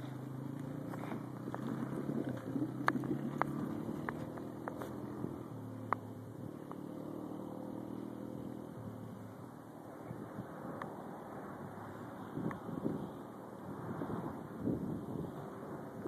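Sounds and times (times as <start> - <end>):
dirt bike engine running: 0.0 - 6.7.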